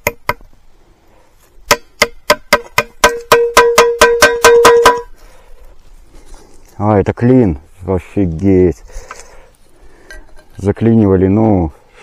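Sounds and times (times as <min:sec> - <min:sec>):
ringing strikes on metal: 0:01.7 - 0:05.1.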